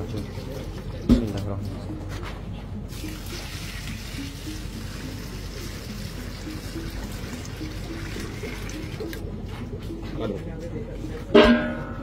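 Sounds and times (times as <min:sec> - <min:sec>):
water pouring into bucket: 0:02.9 - 0:09.2.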